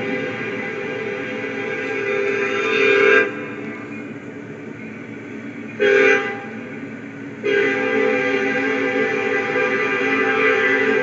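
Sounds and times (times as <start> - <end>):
locomotive air horn chord: 0.0 - 3.8, 5.8 - 6.7, 7.4 - 11.0.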